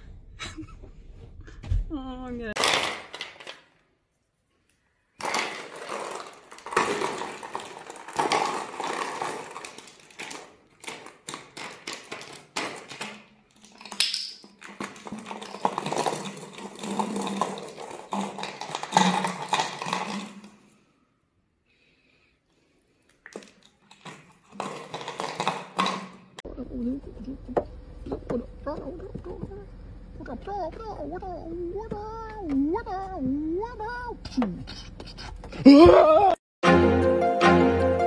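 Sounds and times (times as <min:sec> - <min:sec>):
plastic bottle crackling: 0:05.2 - 0:20.7, 0:23.1 - 0:26.4
low steady hum: 0:26.5 - 0:34.8.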